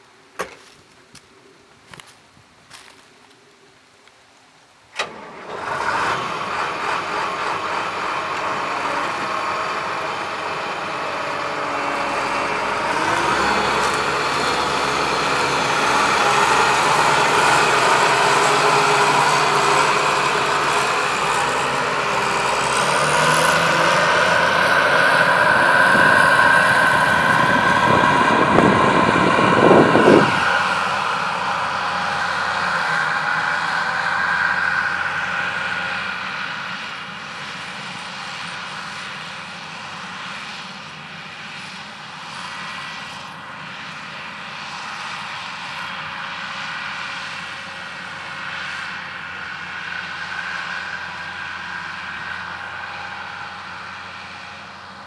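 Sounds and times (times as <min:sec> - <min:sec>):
combine harvester engine running: 0:04.9 - 0:55.0
machinery rattle: 0:05.0 - 0:34.0.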